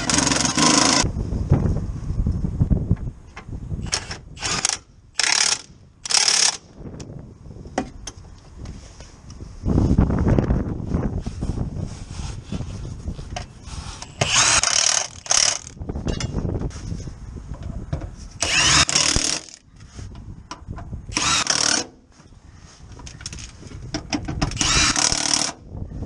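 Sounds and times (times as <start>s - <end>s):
impact wrench hammering on a bolt: 18.4s - 19.6s, 21.1s - 22.0s.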